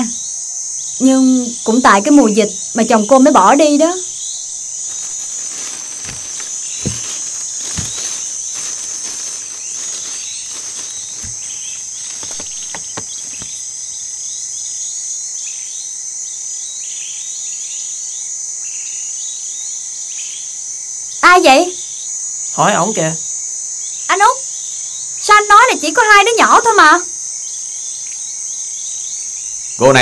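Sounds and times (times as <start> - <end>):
crickets chirring: 0.0 - 30.0
dull knocks: 6.0 - 9.2, 11.0 - 13.6.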